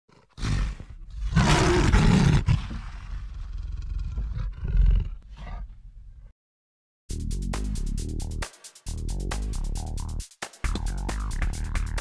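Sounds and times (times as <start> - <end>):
wild animal roar: 0.1 - 5.7.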